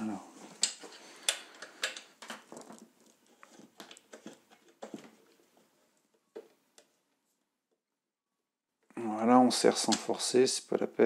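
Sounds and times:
plastic part clicking and scraping: 0:00.6 - 0:05.4.

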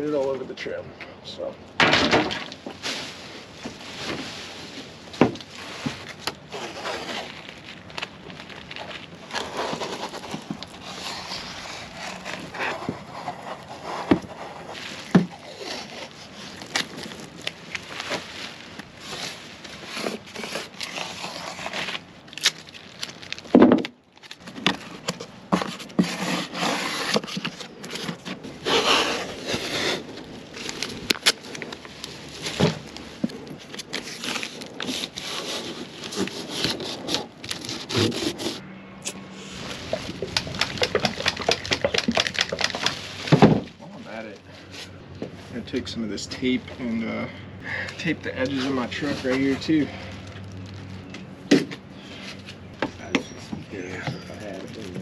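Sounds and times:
tape ripping: 0:05.4 - 0:43.5.

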